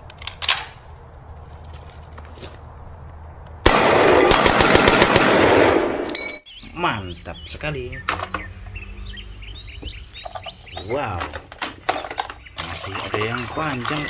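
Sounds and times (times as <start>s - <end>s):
automatic machine-gun fire: 3.7s - 5.9s.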